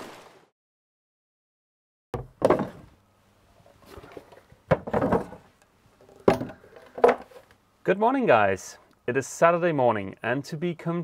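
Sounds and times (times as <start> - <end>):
sharp knocks and thuds: 2.2 - 2.9.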